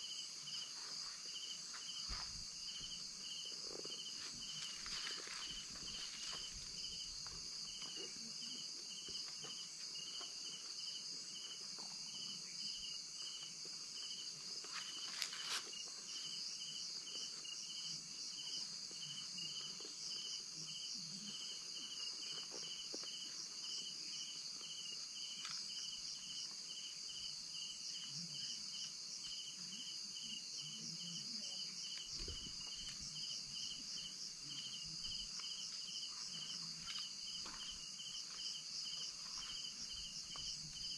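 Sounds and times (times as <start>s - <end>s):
crickets chirping: 0.0s - 40.9s
rustle: 3.5s - 10.7s, 14.6s - 16.3s.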